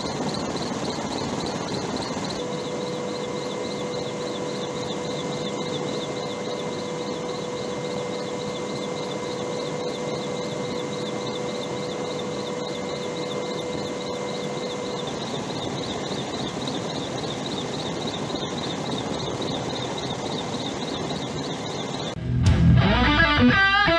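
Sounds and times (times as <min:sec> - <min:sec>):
helicopter cabin drone: 0:00.0 - 0:22.2
guitar music: 0:22.2 - 0:23.9.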